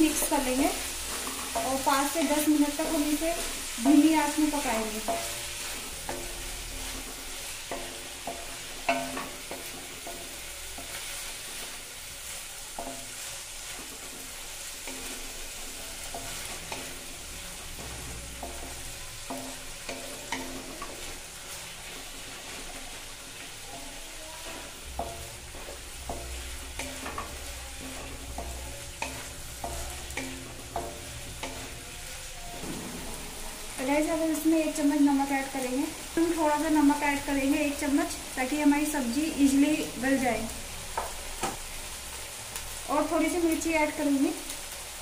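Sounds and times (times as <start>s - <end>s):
vegetables sizzling in oil: 0.0s - 45.0s
spatula knocking and scraping pan: 1.0s - 11.6s, 12.8s - 31.9s, 32.5s - 34.2s.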